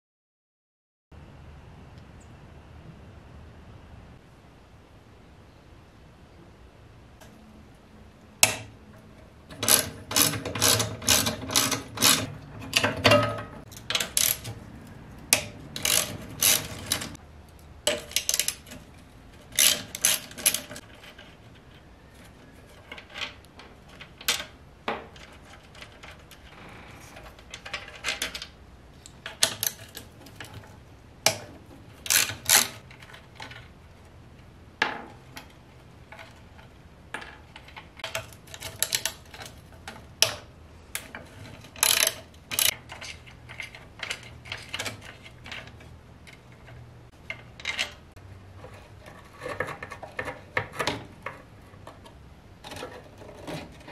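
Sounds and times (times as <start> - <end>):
sharp knocks of metal parts: 8.4 - 14.6
ratchet clicks: 9.5 - 13.0, 13.7 - 14.6, 15.3 - 17.2, 19.5 - 20.8, 32.0 - 32.8, 41.8 - 43.1.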